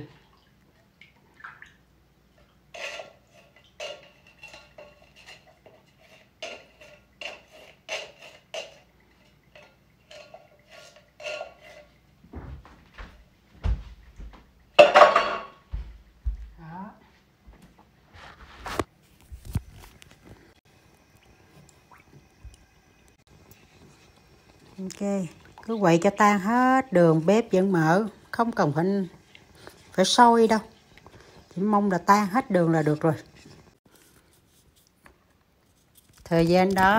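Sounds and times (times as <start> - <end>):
metal utensils clinking on saucepan: 2.8 - 12.0, 14.8 - 15.6.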